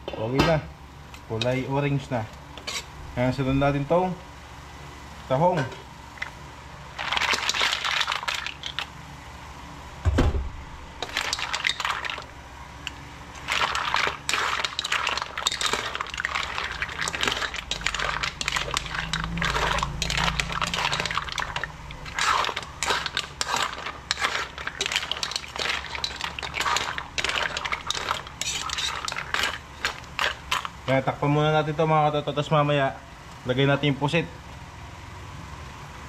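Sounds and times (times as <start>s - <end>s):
shells clattering in a metal pan: 7.0s - 8.9s, 11.0s - 12.3s, 13.4s - 30.8s
heavy thump: 10.0s - 10.6s.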